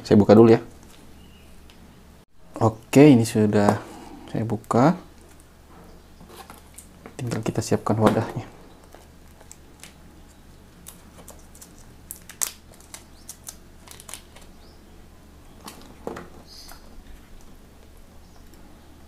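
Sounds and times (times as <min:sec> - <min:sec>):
plastic crinkling: 0:08.8 - 0:14.6.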